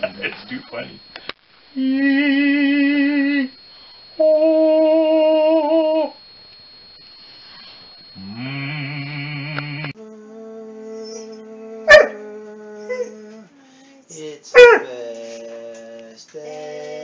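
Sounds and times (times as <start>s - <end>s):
dog howling: 4.2s - 6.2s, 10.7s - 13.5s.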